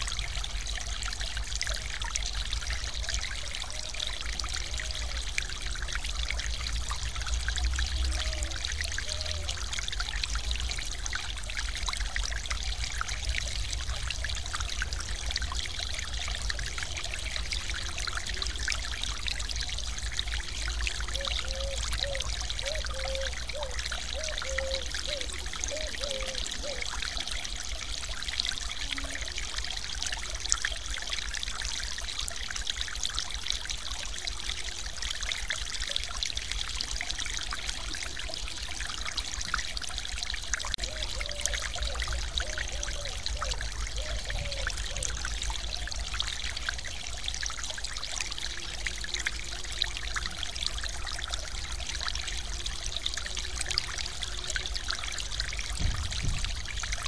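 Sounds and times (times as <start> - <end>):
water spilling over weir: 0.0 - 57.0.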